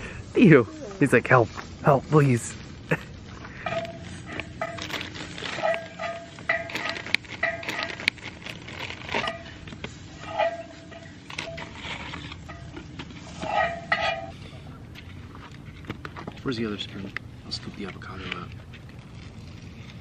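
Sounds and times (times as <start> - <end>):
dog whining: 0.6 - 1.1
plastic bag crinkling: 3.7 - 10.2.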